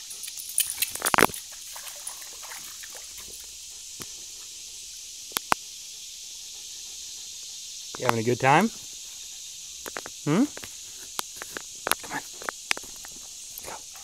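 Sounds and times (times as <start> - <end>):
dog splashing in water: 0.0 - 3.6
faint hiss: 0.0 - 14.0.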